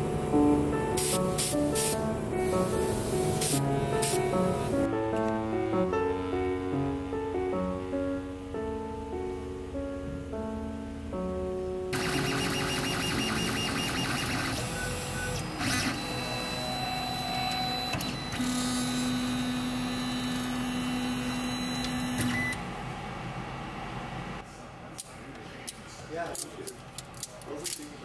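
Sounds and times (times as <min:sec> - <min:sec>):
stepper motors whining: 0:12.0 - 0:22.6.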